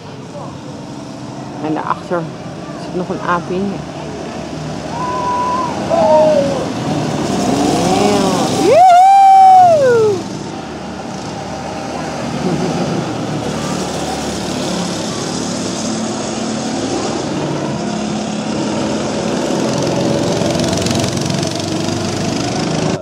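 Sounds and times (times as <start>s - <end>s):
distant kart engines running: 0.0s - 23.0s
go-kart engine passing by: 0.0s - 23.0s.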